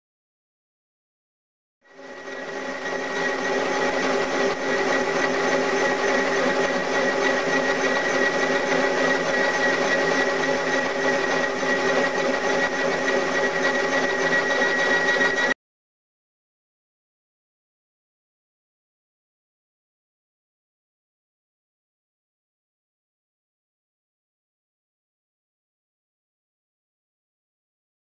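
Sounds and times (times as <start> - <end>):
milling machine spindle whine: 1.9 - 15.6
high ringing cutting tone: 2.0 - 15.6.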